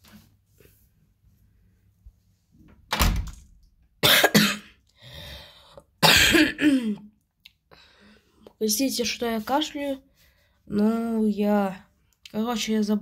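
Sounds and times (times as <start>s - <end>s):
boy coughing: 4.0s - 4.8s, 6.0s - 7.1s
soft breath: 5.0s - 5.8s, 7.7s - 8.4s, 10.1s - 10.7s.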